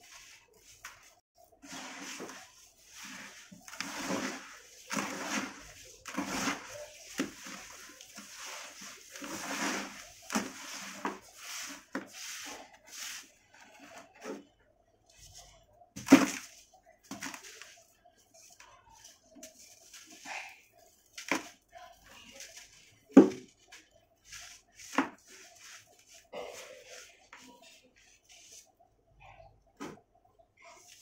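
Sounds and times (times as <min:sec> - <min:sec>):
hands squishing wet sand and cement: 0:00.0 - 0:13.5.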